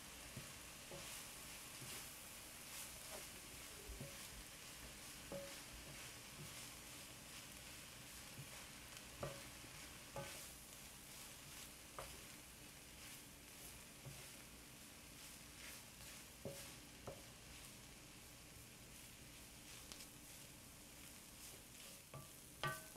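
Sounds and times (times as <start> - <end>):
food sizzling in a pan: 0.0 - 22.9
spatula stirring food: 0.0 - 22.9
spatula knocking against pan: 5.3 - 6.6, 9.2 - 10.5, 16.4 - 17.4, 22.1 - 22.9.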